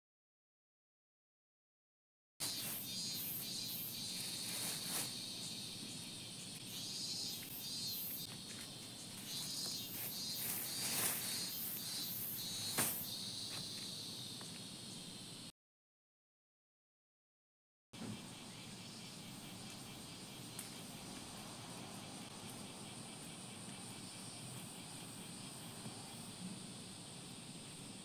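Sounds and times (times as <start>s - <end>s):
insects chirring: 2.4s - 15.5s, 18.0s - 28.0s
dry leaves rustling and crackling: 4.0s - 5.5s, 8.3s - 11.8s, 12.4s - 13.6s.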